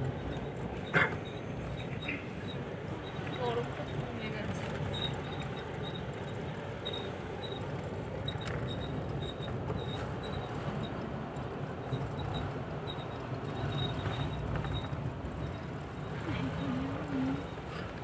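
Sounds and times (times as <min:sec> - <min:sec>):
vehicle driving rumble: 0:00.0 - 0:18.0
short high squeaks: 0:00.2 - 0:03.6, 0:11.8 - 0:17.8.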